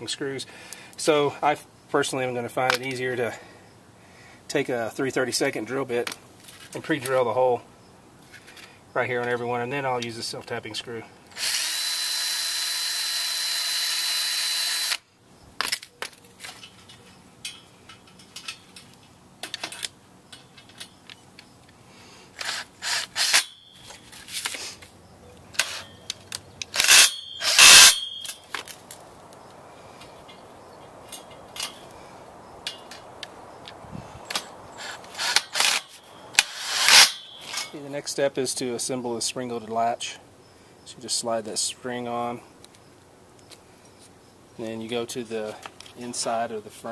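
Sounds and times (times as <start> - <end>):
cordless drill drilling into steel: 11.4 - 15.0, 26.8 - 28.1
parts clicking and knocking: 15.6 - 31.9.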